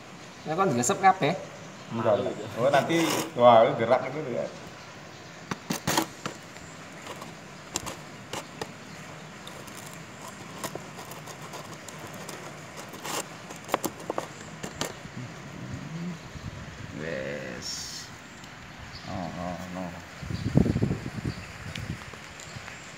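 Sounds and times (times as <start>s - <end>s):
steady hiss: 0.0s - 22.9s
plastic jar clicks and crinkles: 9.4s - 15.0s.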